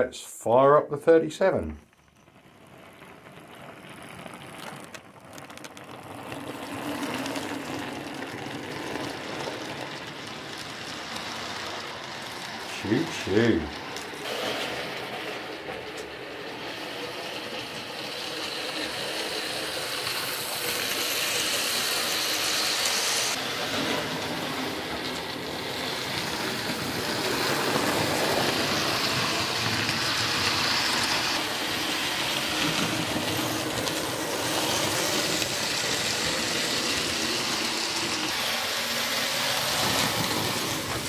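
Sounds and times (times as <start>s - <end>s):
model train running on rails: 1.0s - 41.0s.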